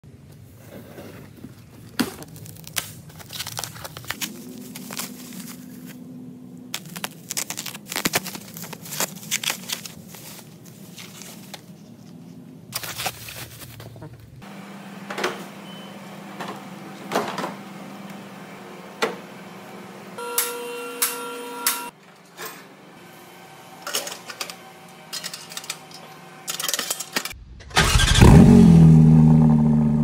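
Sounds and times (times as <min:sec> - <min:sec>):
paper and plastic rustling: 0:00.4 - 0:06.1, 0:06.7 - 0:14.4.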